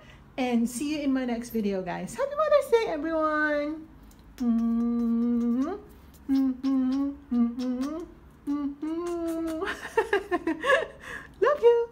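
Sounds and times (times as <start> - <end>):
woman humming: 4.4 - 10.0.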